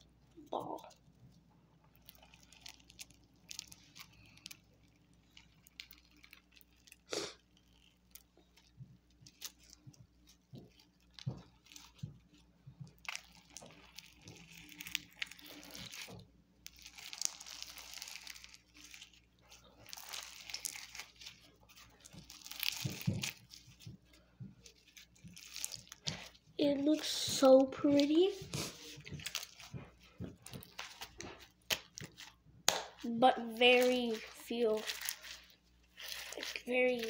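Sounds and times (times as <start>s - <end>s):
toy filling crackling and crinkling: 0.0s - 37.0s.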